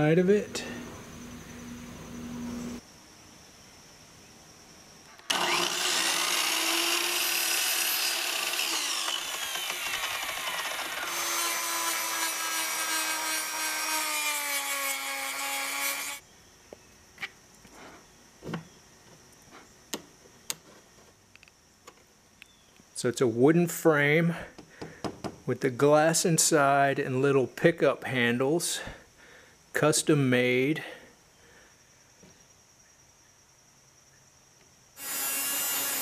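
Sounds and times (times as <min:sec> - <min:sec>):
rotary tool sanding wood: 0:05.3 - 0:16.2, 0:35.0 - 0:36.0.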